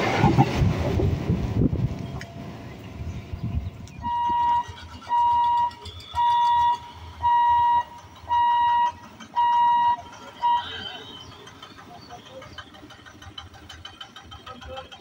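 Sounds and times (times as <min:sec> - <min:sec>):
passing train rumble: 0:00.0 - 0:15.0
level crossing hooter beeping: 0:04.0 - 0:11.4.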